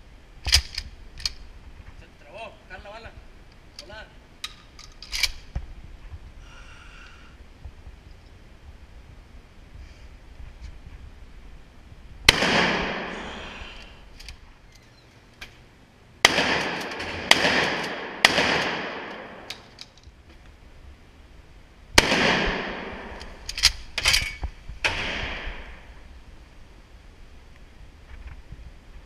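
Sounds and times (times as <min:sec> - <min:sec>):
sharp gunshot cracks: 0:12.3 - 0:13.2, 0:16.2 - 0:19.5, 0:22.0 - 0:23.4, 0:24.8 - 0:25.8
gunshots echoing indoors: 0:12.3 - 0:13.6, 0:16.2 - 0:19.8, 0:22.0 - 0:26.0.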